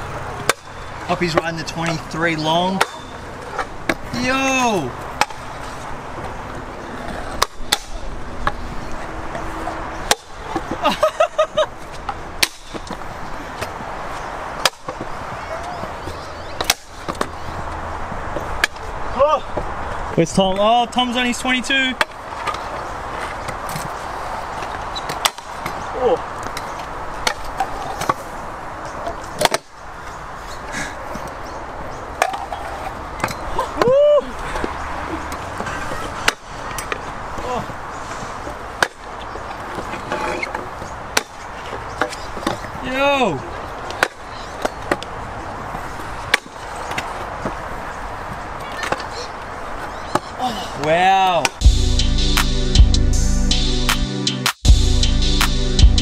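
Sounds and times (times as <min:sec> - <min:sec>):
scooter wheels rumbling on concrete: 0:00.0 - 0:51.6
scooter deck clacking: 0:32.2 - 0:37.8, 0:38.4 - 0:42.8, 0:43.7 - 0:51.6.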